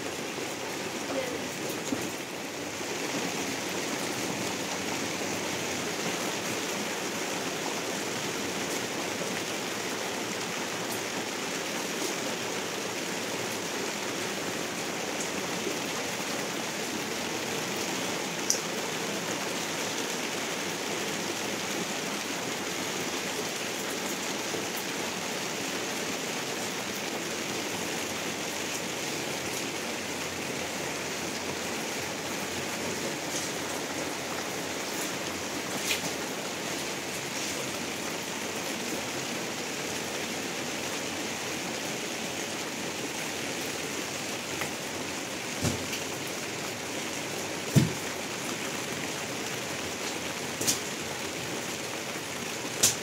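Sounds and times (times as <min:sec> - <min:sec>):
heavy rain falling: 0:00.0 - 0:53.0.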